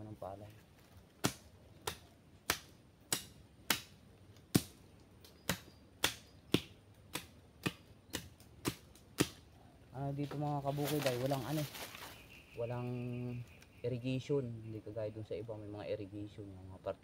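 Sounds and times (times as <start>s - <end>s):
tool chopping wood: 1.2s - 4.8s, 5.4s - 9.5s.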